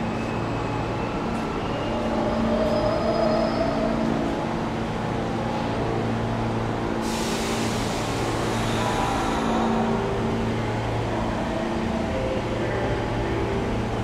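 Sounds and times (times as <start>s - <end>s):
subway train humming: 0.0s - 14.0s
hiss: 7.0s - 9.5s.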